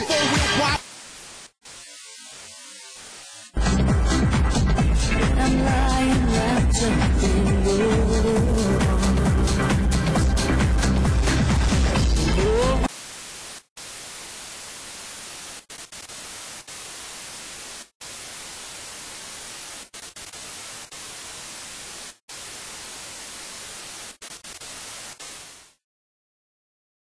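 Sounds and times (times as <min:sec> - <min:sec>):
electronic dance music: 0:00.0 - 0:00.8
static hiss: 0:00.0 - 0:03.6, 0:11.5 - 0:25.8.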